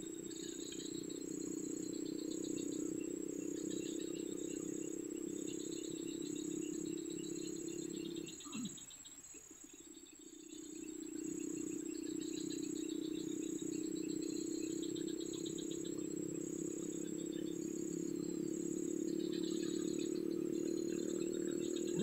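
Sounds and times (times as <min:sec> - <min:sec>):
crickets trilling: 0:00.0 - 0:22.0
high insect buzz: 0:00.0 - 0:22.0
low drone: 0:10.9 - 0:22.0.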